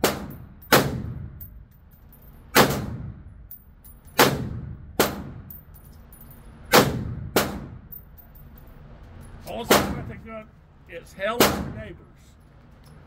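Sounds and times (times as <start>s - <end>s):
rifle shots echoing indoors: 0.0s - 1.5s, 2.5s - 3.3s, 4.1s - 5.6s, 6.7s - 8.0s
brass casings tinkling: 1.4s - 2.6s, 3.4s - 4.2s, 5.4s - 6.7s, 7.8s - 11.3s, 12.1s - 13.0s.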